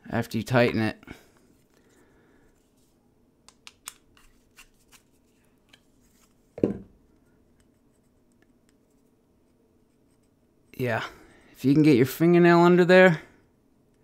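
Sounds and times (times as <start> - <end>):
dull thump on wooden bench: 6.6 - 6.9.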